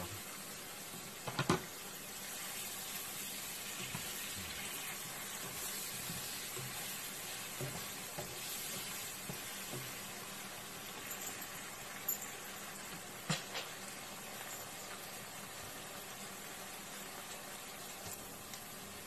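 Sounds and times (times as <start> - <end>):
onions sizzling in frying pan: 0.0 - 19.0
spatula stirring in pan: 0.1 - 12.4.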